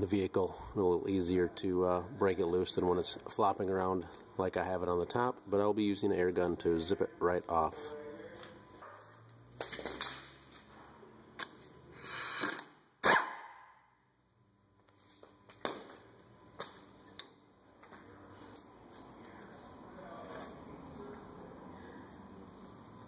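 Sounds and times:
impact wrench burst: 0:12.0 - 0:13.8.

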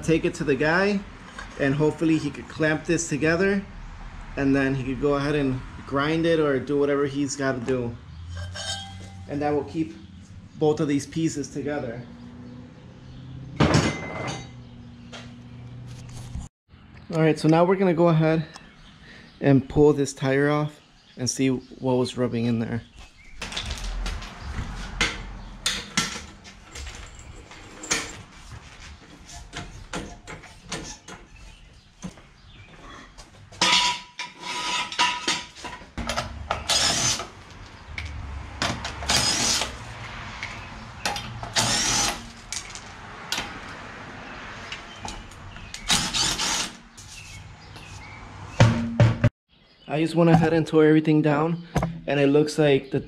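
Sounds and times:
metal clanks: 0:08.3 - 0:09.3, 0:51.7 - 0:52.1
power tool bursts: 0:36.6 - 0:37.3, 0:39.0 - 0:39.7, 0:41.5 - 0:42.3, 0:45.8 - 0:46.8.

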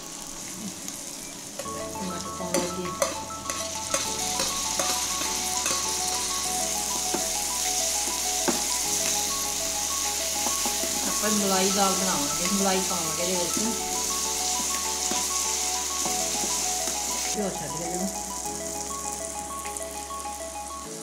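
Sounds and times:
soft instrumental music: 0:00.0 - 0:21.0
spices sizzling in hot oil: 0:00.0 - 0:21.0
metal spoon clicking on pan: 0:02.5 - 0:06.0.

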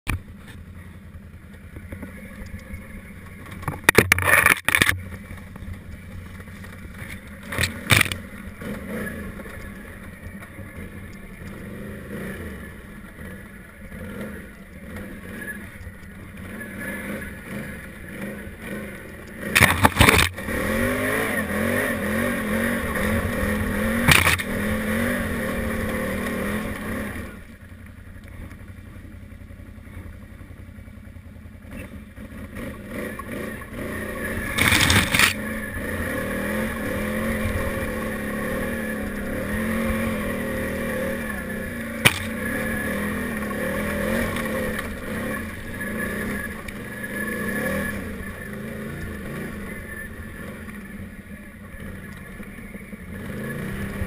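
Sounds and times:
atv engine revving: 0:00.1 - 0:54.0
loud knocks and scrapes: 0:24.1 - 0:24.5, 0:34.6 - 0:35.4, 0:42.0 - 0:42.4.

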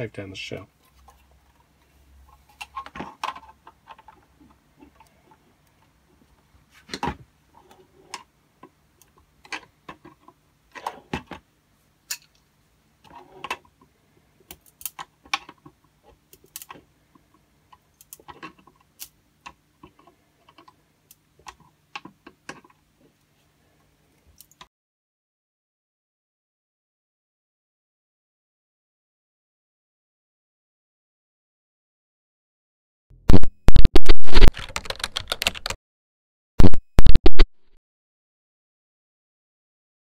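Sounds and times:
plastic parts and pliers clicking: 0:14.5 - 0:15.7.

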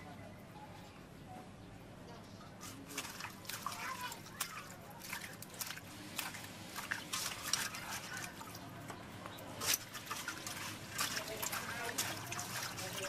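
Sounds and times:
hands swishing vegetables in water: 0:02.6 - 0:08.9, 0:09.5 - 0:13.0.

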